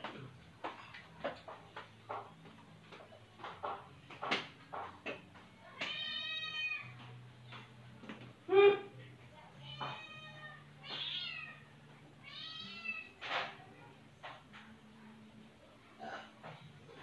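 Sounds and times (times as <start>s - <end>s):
cat meowing: 5.8s - 7.0s, 9.6s - 11.6s, 12.2s - 13.2s.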